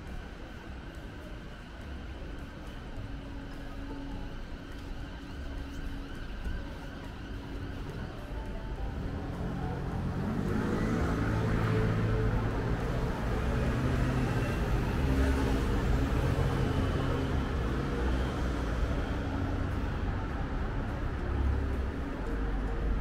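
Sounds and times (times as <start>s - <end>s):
street traffic with tyre noise: 0.0s - 23.0s
engine speeding up: 9.0s - 18.7s.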